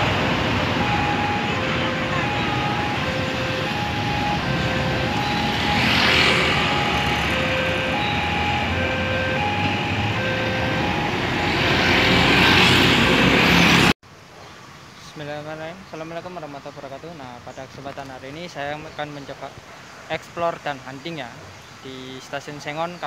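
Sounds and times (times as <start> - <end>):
road traffic: 0.0 - 23.0
level crossing two-tone alarm: 0.6 - 13.5.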